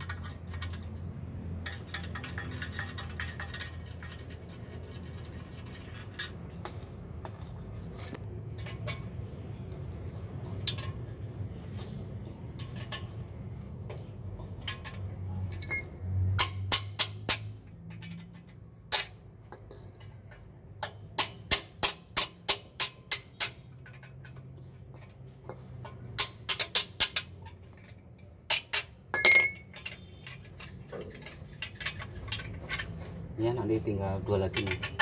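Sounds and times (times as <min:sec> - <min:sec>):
spanner ratcheting metallic clicks: 0:00.0 - 0:06.8, 0:25.8 - 0:32.9
metal clink with ring: 0:01.6 - 0:09.2, 0:14.4 - 0:24.4, 0:25.5 - 0:32.5.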